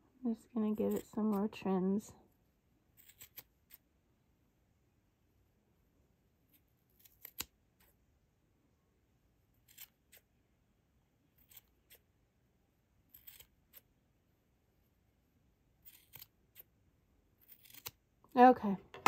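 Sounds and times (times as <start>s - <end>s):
scissors snipping yarn: 0.6s - 1.6s, 2.9s - 3.8s, 6.4s - 8.0s, 9.6s - 10.3s, 11.3s - 12.1s, 13.0s - 13.9s, 15.8s - 16.7s, 17.4s - 19.0s.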